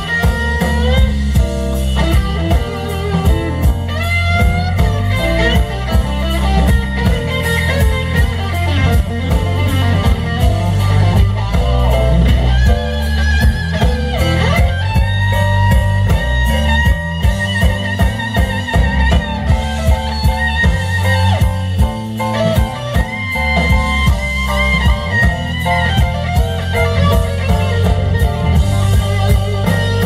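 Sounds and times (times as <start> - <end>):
drum kit beat: 0.0 - 30.0
electric bass: 0.0 - 30.0
electric guitar lead: 0.0 - 30.0.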